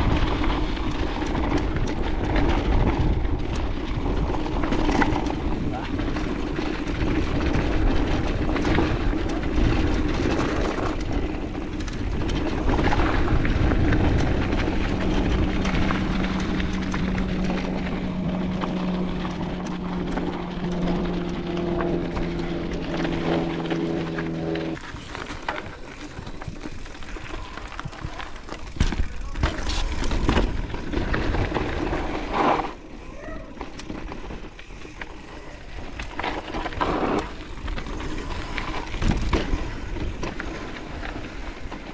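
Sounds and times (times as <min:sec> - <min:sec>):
wind rushing over microphone: 0:00.0 - 0:24.8, 0:34.4 - 0:41.9
bike knocks and rattles: 0:00.0 - 0:41.9
tyres rumbling over dirt: 0:00.0 - 0:41.9.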